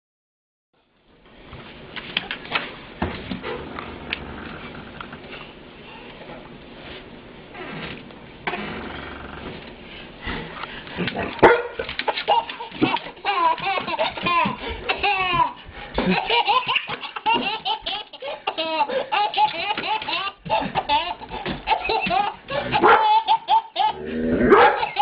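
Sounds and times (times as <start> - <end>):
baby laughing and giggling: 11.0 - 24.0, 24.7 - 25.0.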